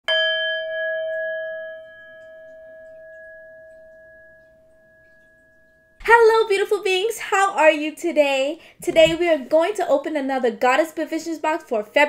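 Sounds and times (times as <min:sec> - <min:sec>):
metal singing bowl ringing: 0:00.1 - 0:06.0.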